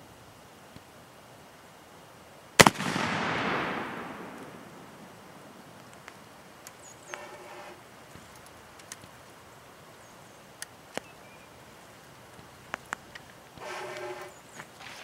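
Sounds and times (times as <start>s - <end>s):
gunshot echo: 2.6s - 5.8s
bird chirps: 6.6s - 7.5s, 9.5s - 11.6s.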